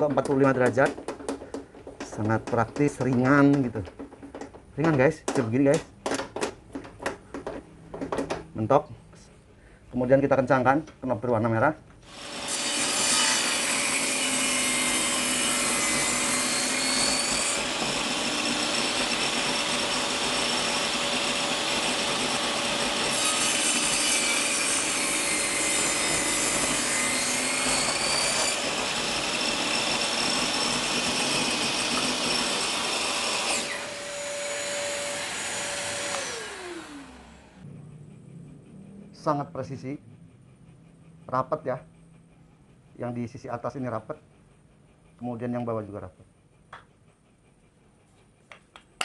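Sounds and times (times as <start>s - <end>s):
table saw cutting wood: 12.0s - 37.7s.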